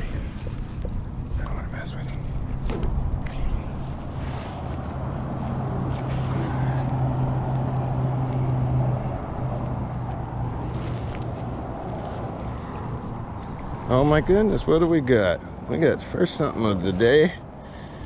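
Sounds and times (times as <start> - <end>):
rope scuffing in gloved hands: 2.6 - 8.4, 9.8 - 13.8.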